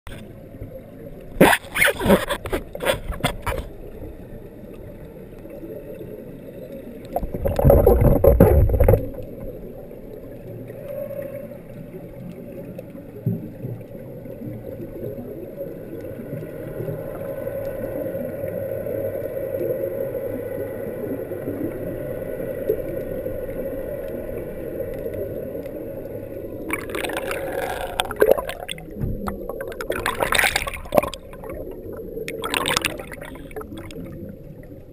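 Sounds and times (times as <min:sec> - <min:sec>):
splashing and bubbles: 0:01.3 - 0:04.0, 0:07.0 - 0:10.4, 0:26.6 - 0:34.9
low underwater hum: 0:02.0 - 0:34.9.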